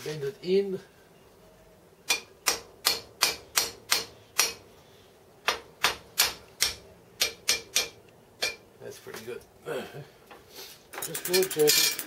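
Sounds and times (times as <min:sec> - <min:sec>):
hammer striking steel: 0:02.1 - 0:04.6, 0:05.4 - 0:08.6.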